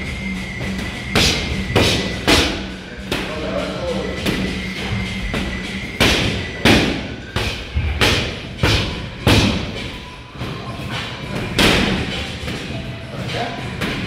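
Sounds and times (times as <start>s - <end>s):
boxing gloves striking focus mitts: 6.0s - 9.8s.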